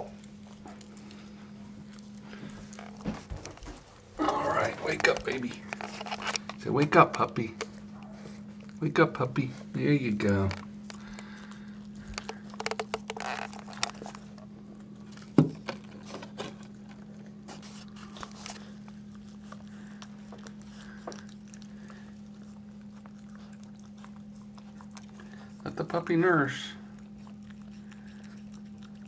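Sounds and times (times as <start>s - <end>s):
steady low hum: 0.0s - 29.0s
dog licking puppy wet clicks: 4.9s - 8.8s.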